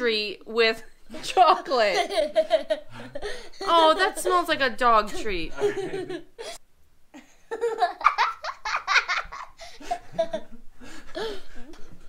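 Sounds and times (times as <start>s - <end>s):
people laughing: 1.2s - 4.5s, 5.5s - 6.6s, 7.5s - 12.0s.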